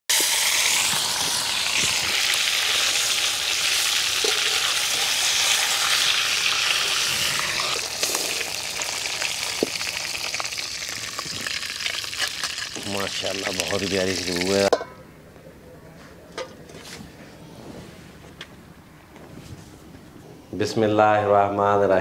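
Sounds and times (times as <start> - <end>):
chicken sizzling in hot oil: 0.1 - 14.7.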